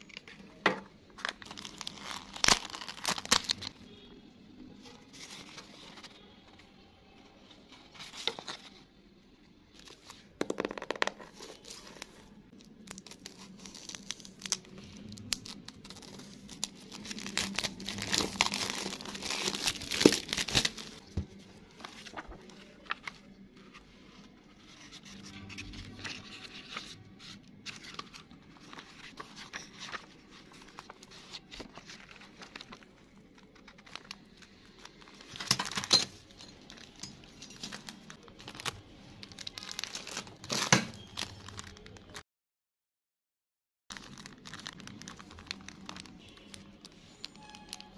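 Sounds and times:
plastic packaging crinkling: 1.1 - 3.8, 10.8 - 23.4, 25.6 - 42.2, 43.9 - 47.9.

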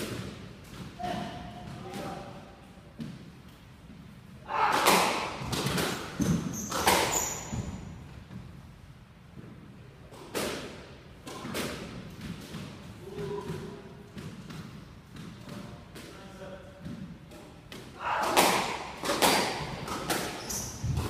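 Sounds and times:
squash ball hitting rackets: 0.0 - 2.3, 4.6 - 8.5, 10.1 - 16.2, 16.8 - 21.0
high squeak: 6.4 - 7.8, 20.4 - 20.8.

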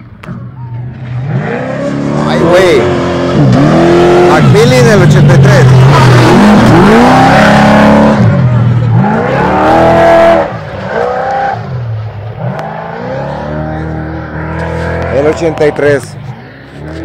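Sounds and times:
race truck engine accelerating: 0.8 - 17.0.

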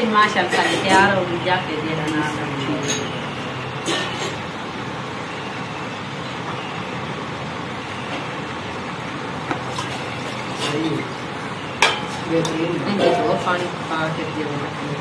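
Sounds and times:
steady background noise: 0.0 - 15.0
steel utensils clinking: 12.9 - 13.8.

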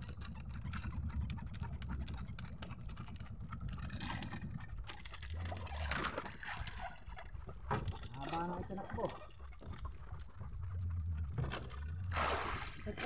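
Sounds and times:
gear clicking and knocking: 0.0 - 12.1
wind rumble on microphone: 0.0 - 13.0
rustling and splashing: 5.3 - 13.0.

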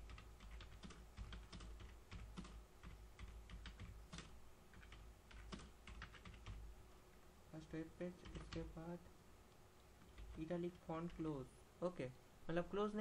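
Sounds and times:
typing on keyboard: 0.0 - 6.6, 8.2 - 8.7, 10.0 - 11.3.

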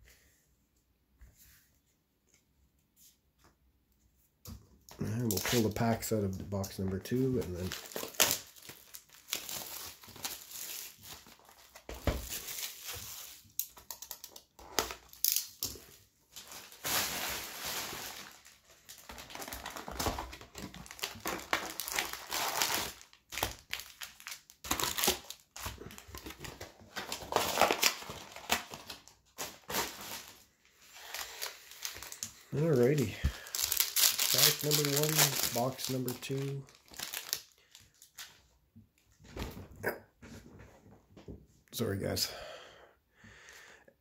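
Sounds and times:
foil packs crinkling: 5.0 - 38.4.

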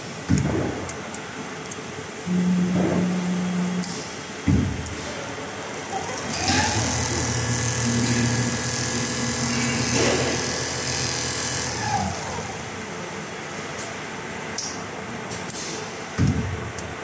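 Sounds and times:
sewing machine stitching: 5.8 - 12.7.

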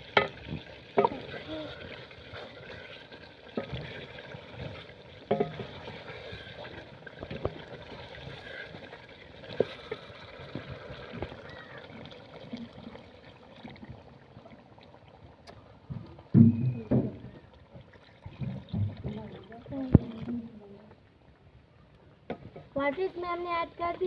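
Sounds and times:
ladle knocking against pot: 5.3 - 5.7.

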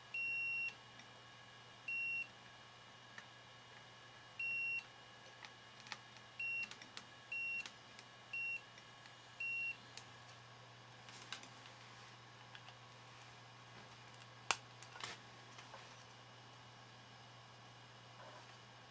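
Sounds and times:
multimeter continuity beeps: 0.1 - 0.8, 1.9 - 2.3, 4.4 - 4.9, 6.4 - 8.7, 9.4 - 9.8.

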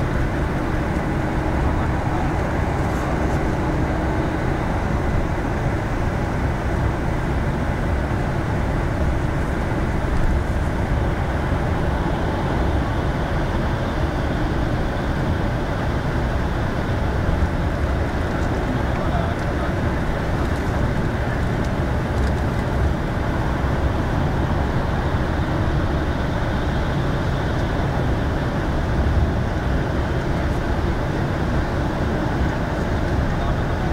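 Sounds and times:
bus engine and road rumble: 0.0 - 33.9.

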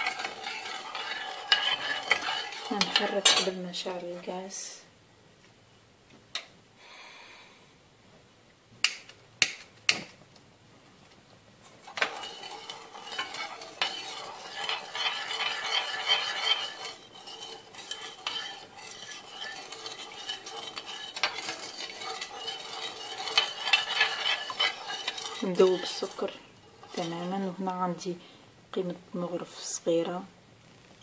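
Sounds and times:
metal spoon scraping saucepan: 0.0 - 4.4, 11.9 - 28.0.

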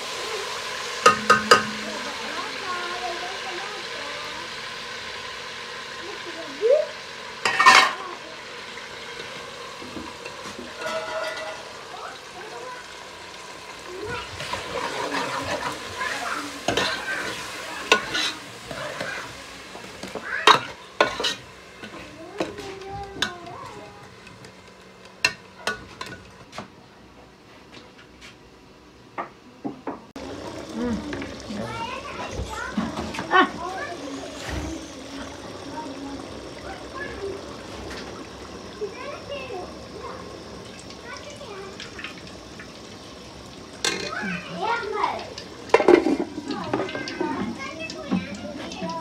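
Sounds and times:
food sizzling in a pot: 0.0 - 28.7, 30.1 - 49.0
metal ladle stirring: 1.0 - 2.3.

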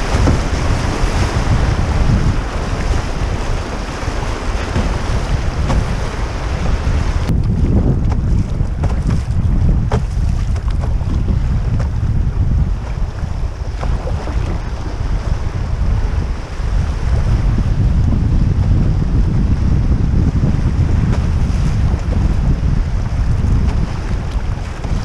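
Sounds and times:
fast-flowing river water: 0.0 - 8.9
wind buffeting microphone: 0.0 - 25.0.

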